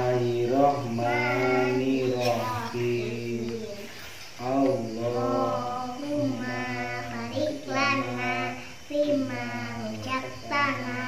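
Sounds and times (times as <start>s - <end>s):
children chanting a prayer: 0.0s - 11.0s.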